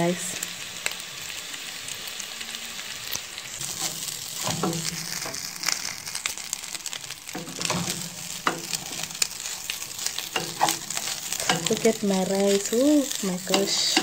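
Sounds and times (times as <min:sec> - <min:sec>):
rice sizzling in a pot: 0:00.0 - 0:14.0
wooden spoon scraping a pot: 0:03.6 - 0:05.4, 0:07.3 - 0:14.0.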